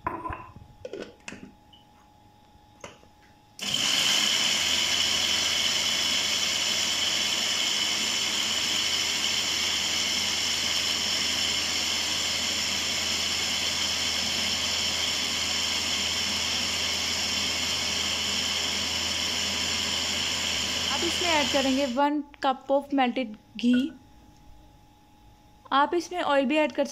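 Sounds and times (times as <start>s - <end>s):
blender running: 3.6s - 22.0s.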